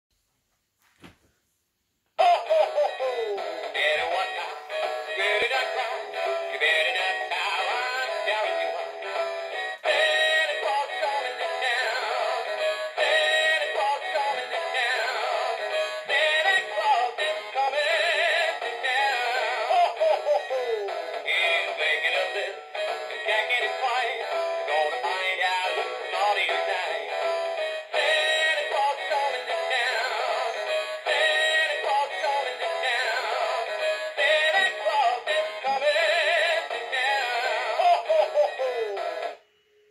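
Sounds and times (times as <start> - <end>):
tinny electronic singing voice: 2.2 - 9.2, 9.9 - 22.6, 28.0 - 39.9.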